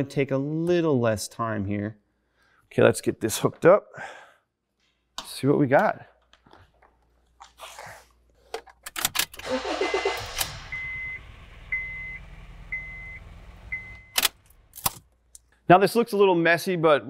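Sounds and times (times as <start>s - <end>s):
car engine cranking and idling: 9.2s - 15.3s
car warning chime beeping: 9.5s - 14.4s.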